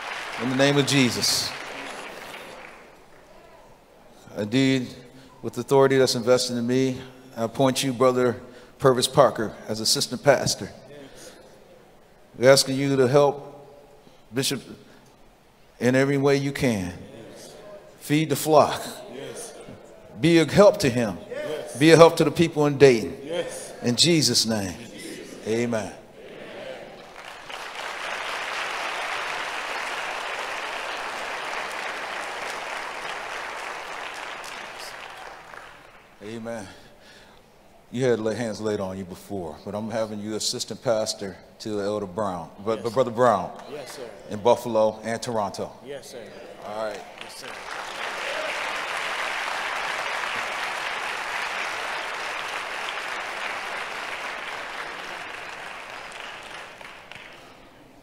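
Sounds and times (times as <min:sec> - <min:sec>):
crowd applauding: 0:00.0 - 0:03.6, 0:26.8 - 0:36.2, 0:46.8 - 0:58.0.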